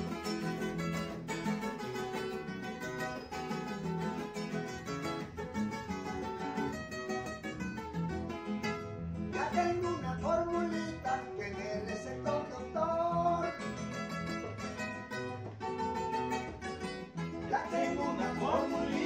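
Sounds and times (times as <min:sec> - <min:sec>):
acoustic guitars playing: 0:00.0 - 0:19.0
person singing: 0:17.4 - 0:19.0.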